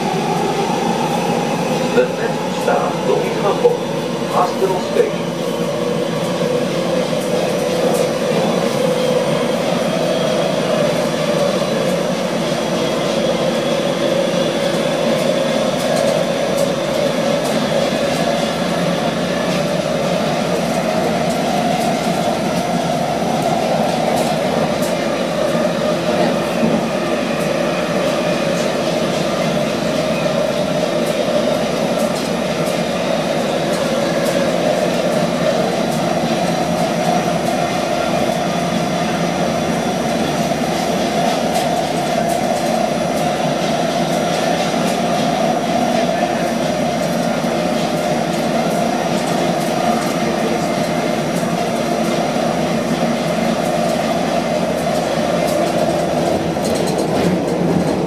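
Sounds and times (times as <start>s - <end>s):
train wheels and motors rumbling: 0.0s - 58.0s.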